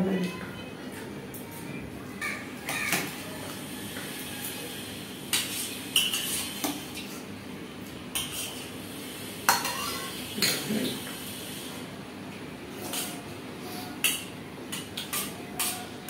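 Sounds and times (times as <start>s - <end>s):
spoons scraping metal plates: 5.3s - 6.6s, 12.7s - 16.0s.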